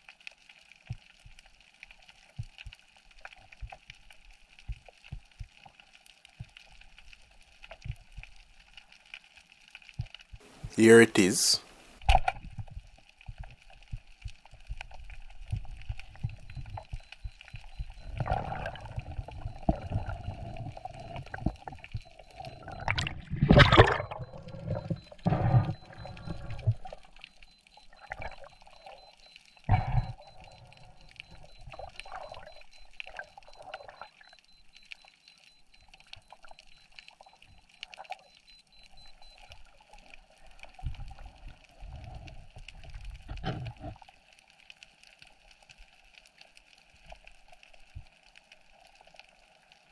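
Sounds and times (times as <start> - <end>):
water gurgling underwater: 15.3 - 27.3, 27.9 - 34.2.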